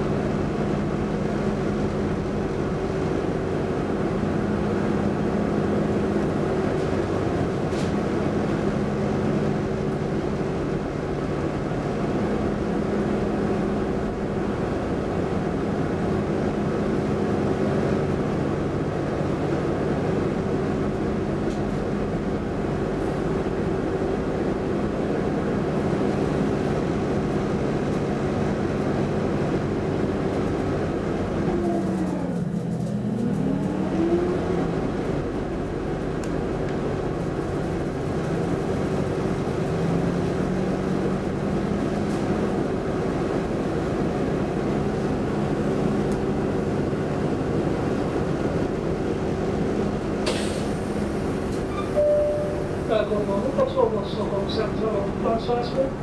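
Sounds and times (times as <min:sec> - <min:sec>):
train cabin rumble: 0:00.0 - 0:56.0.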